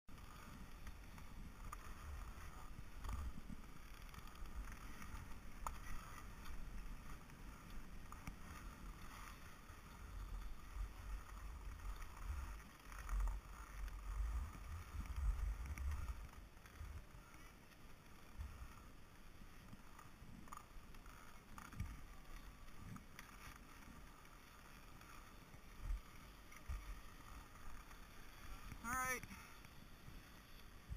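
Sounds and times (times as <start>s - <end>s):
skis scraping over snow: 0.1s - 30.9s
wind rumbling on microphone: 0.1s - 30.9s.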